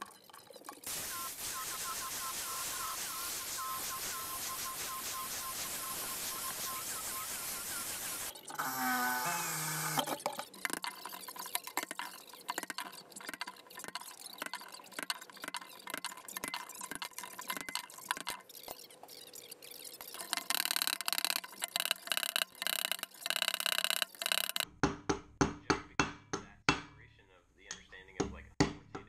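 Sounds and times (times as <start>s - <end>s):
metal clicking and scraping: 9.9s - 24.7s.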